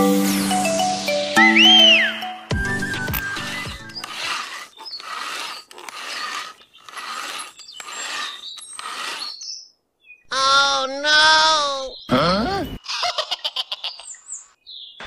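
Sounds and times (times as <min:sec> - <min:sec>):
saw rasping back and forth: 0:02.9 - 0:09.5.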